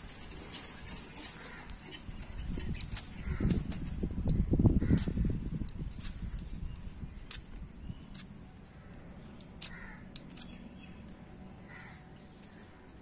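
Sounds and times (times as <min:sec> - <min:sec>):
knife scraping root skin: 0:00.5 - 0:08.5, 0:09.3 - 0:10.8.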